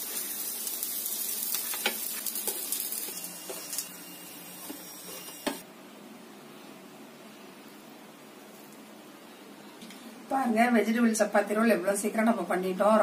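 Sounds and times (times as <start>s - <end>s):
oil sizzling in a frying pan: 0.0s - 5.6s.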